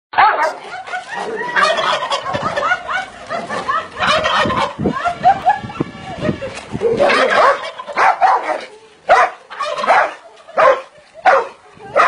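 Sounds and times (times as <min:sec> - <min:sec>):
high animal cries: 0:03.7 - 0:08.2.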